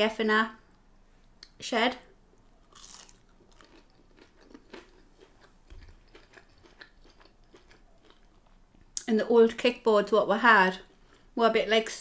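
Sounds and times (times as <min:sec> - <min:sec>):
chewing: 0:02.5 - 0:09.1.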